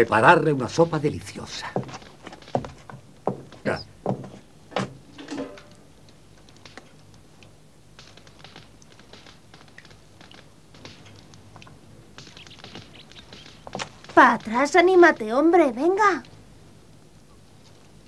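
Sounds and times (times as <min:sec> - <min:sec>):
wood fire crackling: 0:00.0 - 0:18.0
metal pot clank: 0:04.9 - 0:05.8.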